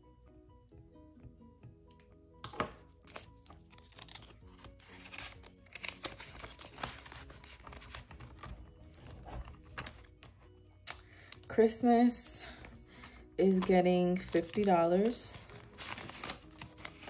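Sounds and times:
soft background music: 0.0s - 17.0s
banknotes rustling and flicking: 1.9s - 17.0s.

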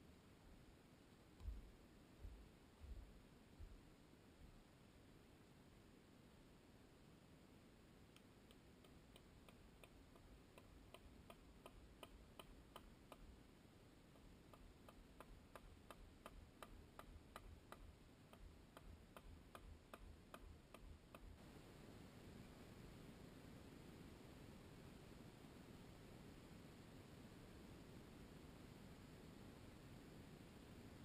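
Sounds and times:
background hiss: 0.0s - 31.0s
faint regular clicking: 1.2s - 3.8s, 8.0s - 21.6s.

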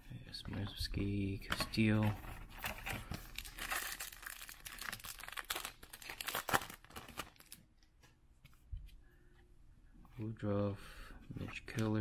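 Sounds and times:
foil wrapper tearing and crinkling: 3.3s - 7.6s.

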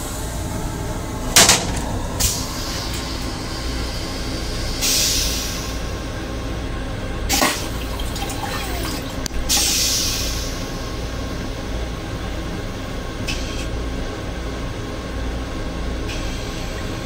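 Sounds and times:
train low rumble: 0.0s - 17.0s
rinse water hissing: 7.3s - 10.7s
toilet flush whoosh: 7.3s - 10.7s.

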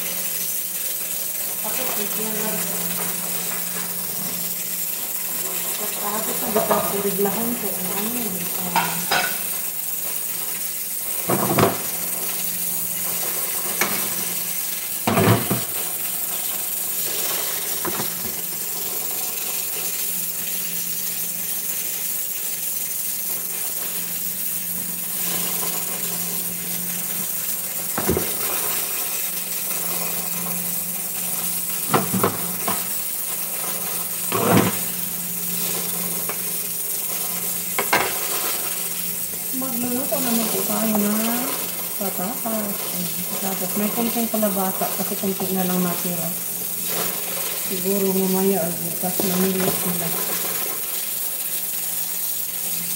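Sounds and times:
kitchen hum and hiss: 0.0s - 52.9s
cookware knocking and clinking: 8.8s - 9.4s.

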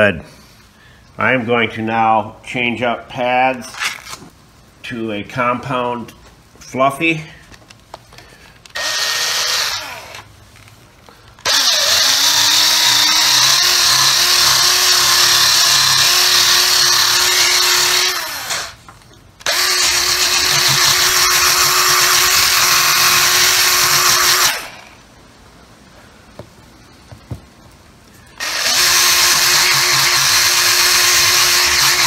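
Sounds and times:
polishing tool motor whine: 19.4s - 24.8s, 28.4s - 32.0s.

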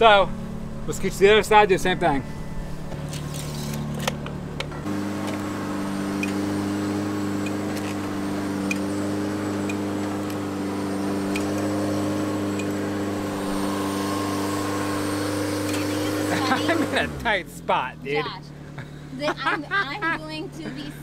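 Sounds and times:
boom lift mechanical hum: 0.0s - 17.3s.

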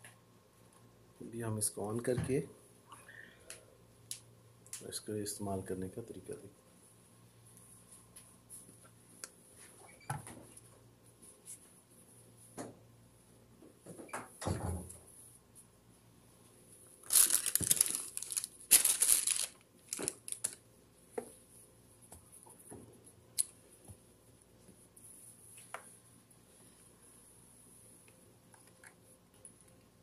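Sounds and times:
plastic packaging rustling: 17.0s - 20.6s.

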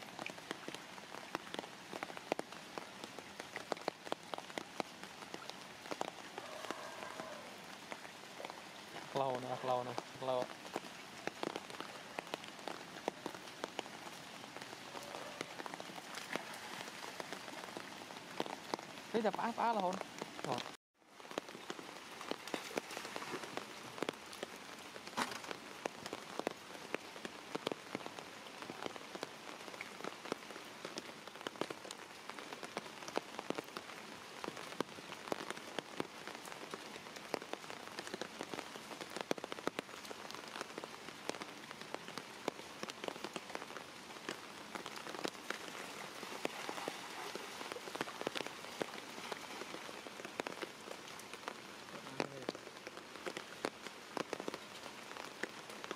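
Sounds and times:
steady rain on water: 0.0s - 55.9s.

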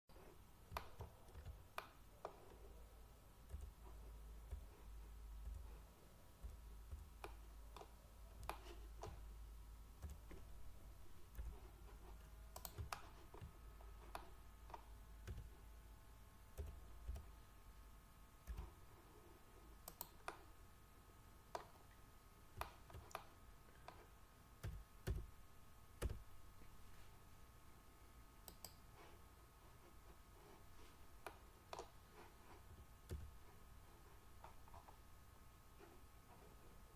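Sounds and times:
faint low hum: 0.1s - 36.9s
faint steady whine: 0.1s - 36.9s
mouse and keyboard clicks: 0.7s - 2.6s, 6.4s - 9.3s, 11.3s - 15.5s, 19.8s - 20.5s, 22.6s - 25.3s, 28.4s - 29.0s.

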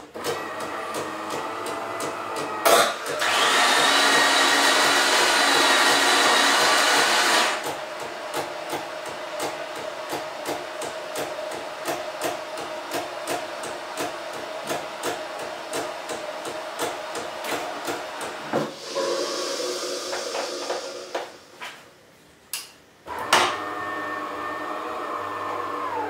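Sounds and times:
coffee machine hum with whine: 0.0s - 21.8s, 23.0s - 26.0s
loud steady whirring: 0.4s - 7.7s.

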